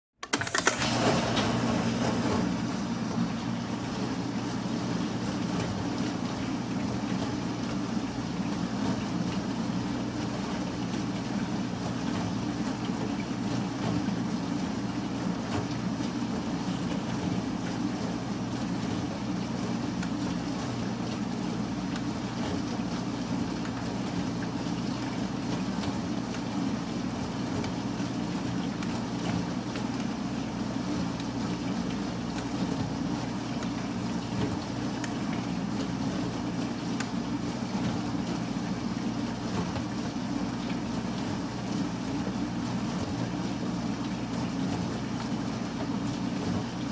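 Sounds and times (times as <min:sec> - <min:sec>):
industrial shredder running: 0:00.2 - 0:03.3.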